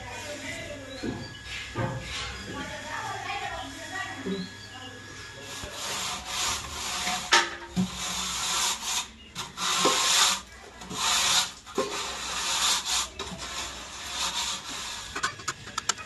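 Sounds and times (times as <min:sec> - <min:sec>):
tools scraping mortar: 0:00.4 - 0:02.8, 0:05.2 - 0:16.0.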